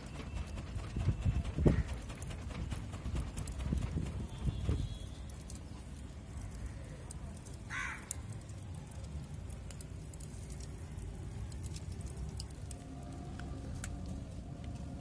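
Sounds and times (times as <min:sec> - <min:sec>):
charcoal crackling: 0:00.0 - 0:15.0
low rumble: 0:10.0 - 0:15.0.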